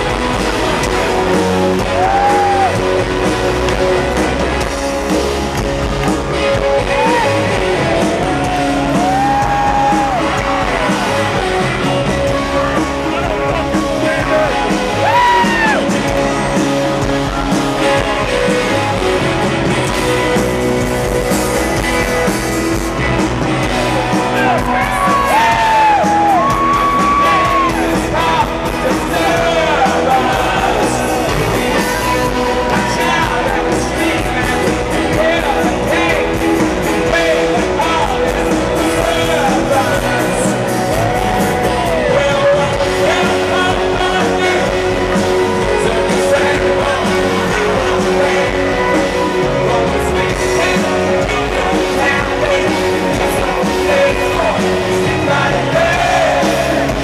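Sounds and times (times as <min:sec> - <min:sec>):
electric guitars: 0:00.0 - 0:57.0
man singing loudly: 0:24.2 - 0:57.0.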